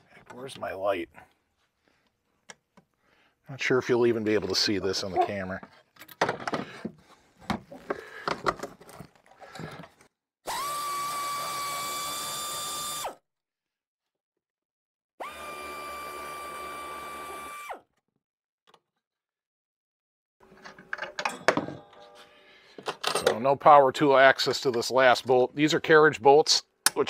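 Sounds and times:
tool clinking and knocking: 20.5s - 23.4s.

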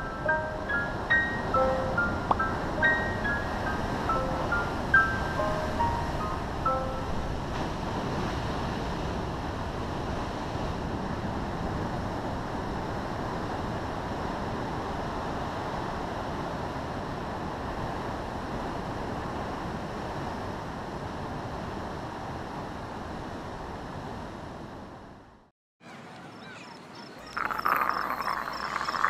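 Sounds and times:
ocean surf breaking on rocks: 0.0s - 16.4s.

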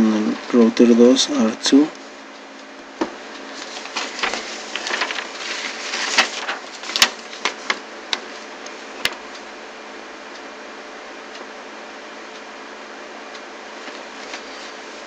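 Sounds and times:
steady background hiss: 0.0s - 15.0s.

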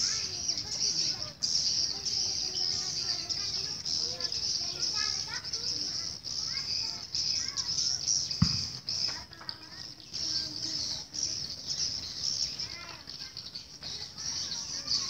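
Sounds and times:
swiftlets twittering: 0.0s - 15.0s
low thump: 8.4s - 8.8s.

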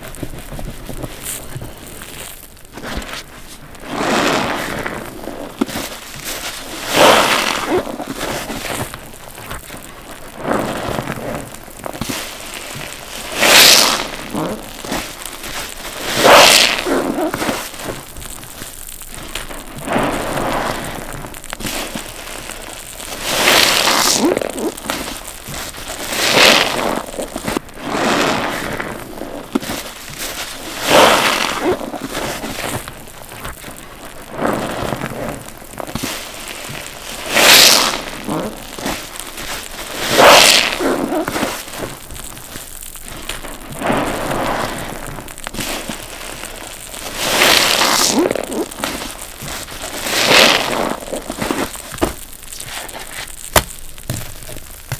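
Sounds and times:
wet sponges squishing: 0.0s - 54.9s.

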